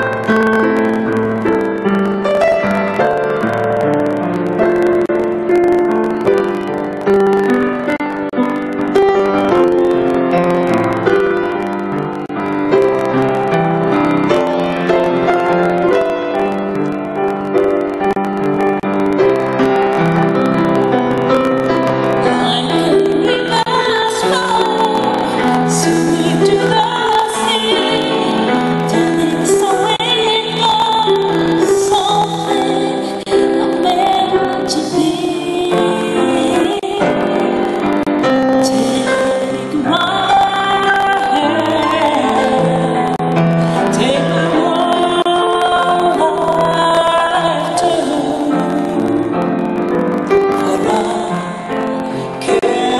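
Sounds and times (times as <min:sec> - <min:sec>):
grand piano playing chords: 0:00.0 - 0:52.9
woman singing into a microphone: 0:21.8 - 0:52.9.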